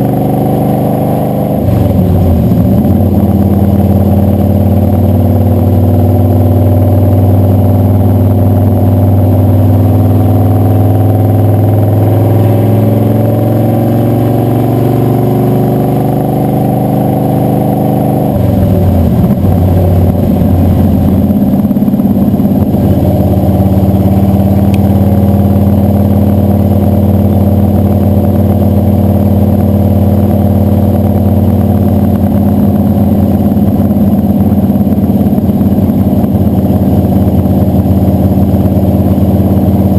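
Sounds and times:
engine drone and exhaust: 0.0 - 39.9
road noise: 0.0 - 39.9.

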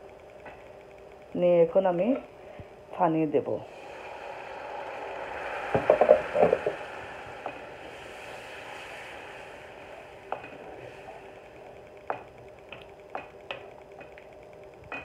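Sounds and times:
water hissing in hot pan: 3.6 - 12.2.

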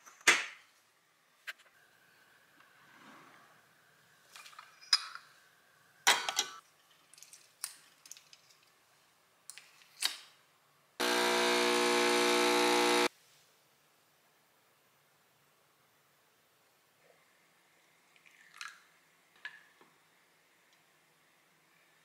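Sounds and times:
espresso machine pump buzzing: 11.0 - 13.1.

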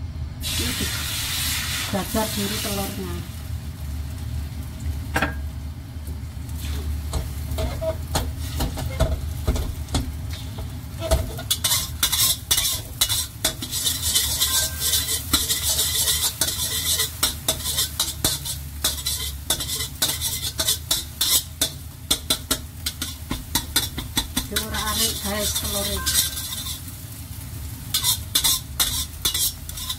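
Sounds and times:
egg sizzling in hot oil: 0.4 - 29.9
metal spatula scraping pan: 7.1 - 9.2, 11.0 - 26.9, 27.9 - 29.9.

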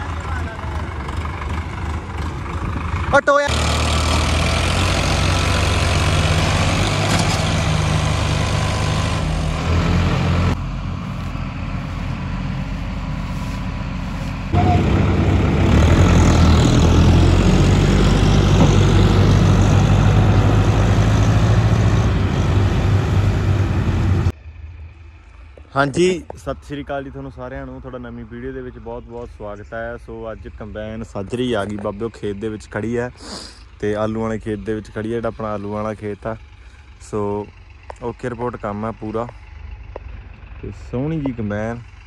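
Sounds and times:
diesel tractor engines under load: 0.0 - 42.0.

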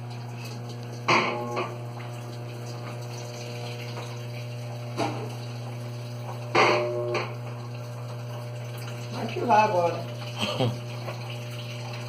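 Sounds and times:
low machine hum: 0.0 - 12.0
water running into washer tub: 0.0 - 12.0.

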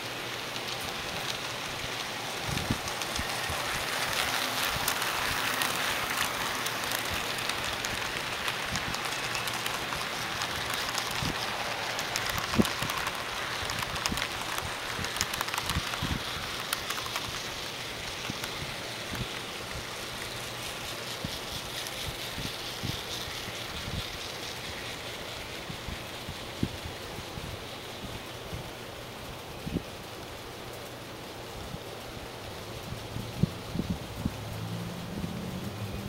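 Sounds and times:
model train rolling on track: 0.0 - 36.0
clicks at rail joints: 0.3 - 25.1.

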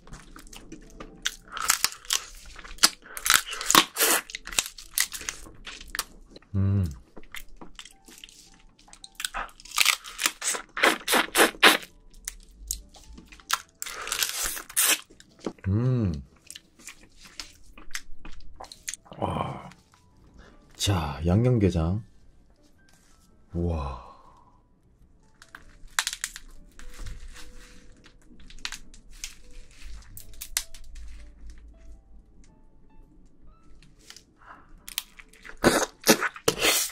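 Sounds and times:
crab shell crunching: 0.0 - 15.6, 25.3 - 31.3, 34.0 - 36.9
wet sucking and squishing: 1.3 - 4.4, 10.0 - 11.9, 13.8 - 15.1, 35.4 - 36.9.

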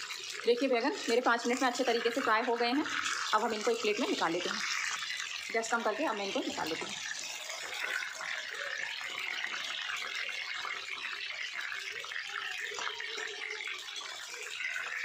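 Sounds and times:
deep-frying sizzle and crackle: 0.0 - 15.0.

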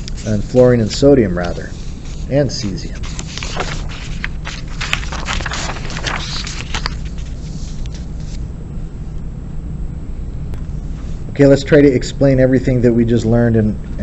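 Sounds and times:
paper rustling and scraping: 0.0 - 8.4
steady low hum: 0.0 - 14.0.

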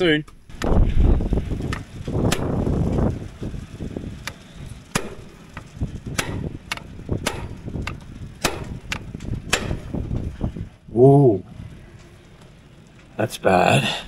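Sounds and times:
hammer striking metal impact driver: 6.2 - 10.0.

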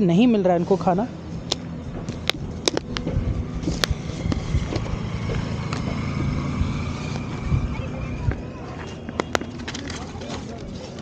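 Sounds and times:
distant traffic: 0.0 - 11.0
wind rumble: 1.1 - 9.7.

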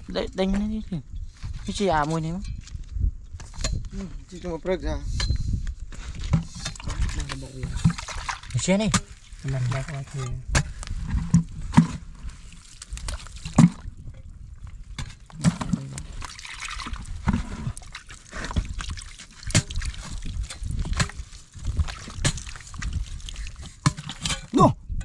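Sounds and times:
soil clods knocking: 15.0 - 24.5
hand splashing in muddy water: 15.3 - 23.9.

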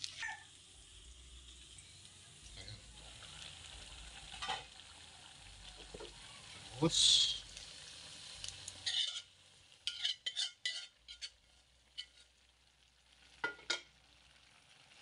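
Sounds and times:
faint sizzle: 0.0 - 15.0
spoon scraping and clicking pans: 8.8 - 9.3, 9.9 - 12.3
spoon knocking on pot: 13.4 - 13.9.

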